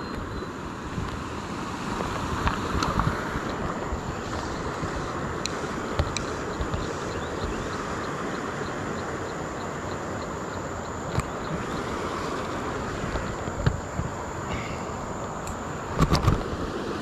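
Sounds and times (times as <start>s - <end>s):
wind on microphone: 0.0s - 17.0s
creek water rushing: 0.5s - 17.0s.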